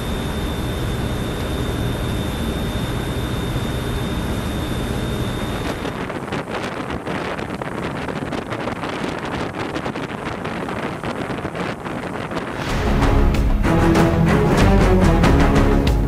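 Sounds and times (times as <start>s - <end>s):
boat engine hum: 0.0s - 9.2s
high whine: 0.0s - 16.0s
wind buffeting microphone: 3.9s - 12.9s.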